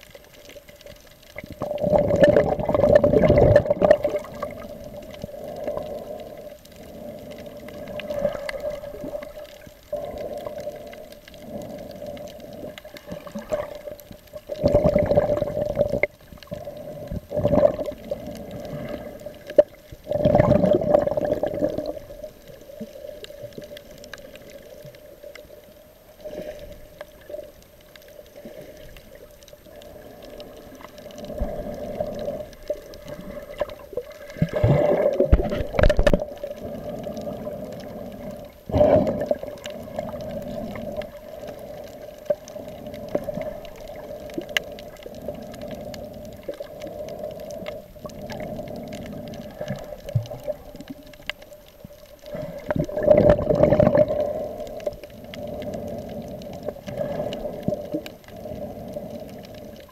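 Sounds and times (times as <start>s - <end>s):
underwater hum: 0.0s - 59.9s
water movement surges: 0.0s - 59.9s.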